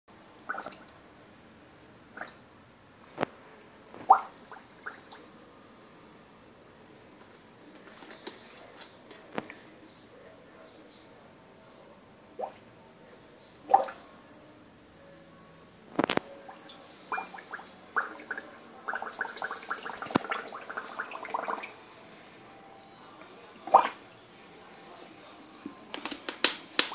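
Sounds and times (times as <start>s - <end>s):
bubbling through straw in water: 0.4s - 0.9s, 17.1s - 21.8s, 23.7s - 24.0s.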